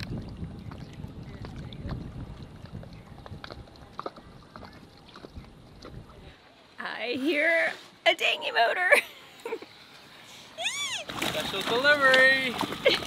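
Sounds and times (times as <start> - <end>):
water lapping against boat hull: 0.0 - 6.4, 10.9 - 13.0
wind rumble on microphone: 0.0 - 6.4.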